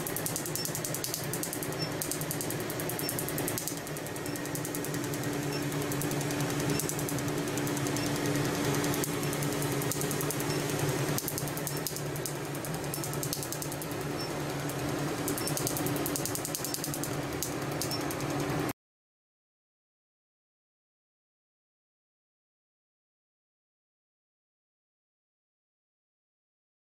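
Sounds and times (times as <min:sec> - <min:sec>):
laser snapping pulses: 0:00.0 - 0:14.0, 0:14.7 - 0:18.4
steady low hum: 0:00.0 - 0:18.7.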